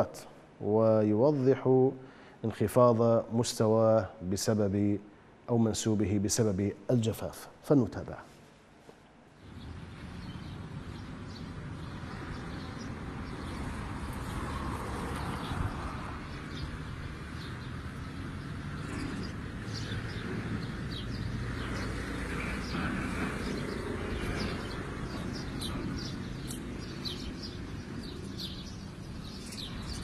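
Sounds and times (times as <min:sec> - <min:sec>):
small birds chirping: 0:09.4 - 0:30.0
low outdoor rumble: 0:18.7 - 0:26.5.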